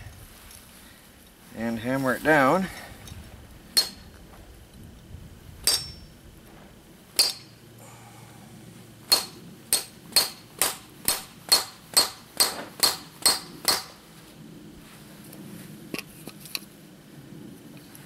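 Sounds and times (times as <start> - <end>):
hammer striking metal crimping tool: 7.2 - 7.5, 9.1 - 13.9.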